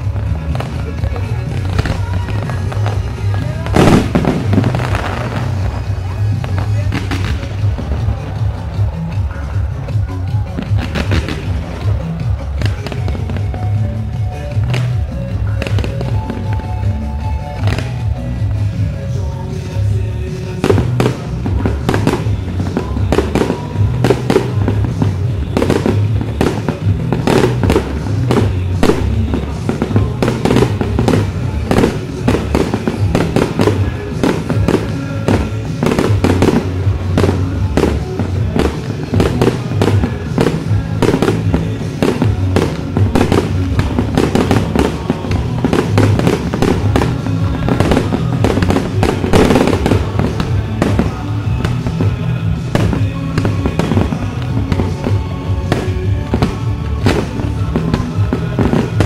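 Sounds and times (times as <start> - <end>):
fireworks bangs and pops: 0.0 - 59.0
music playing: 0.0 - 59.0.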